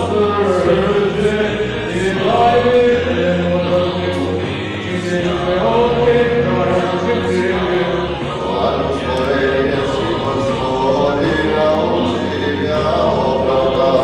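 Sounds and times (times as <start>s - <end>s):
low held drone: 0.0s - 14.0s
male voices chanting a hymn: 0.0s - 14.0s.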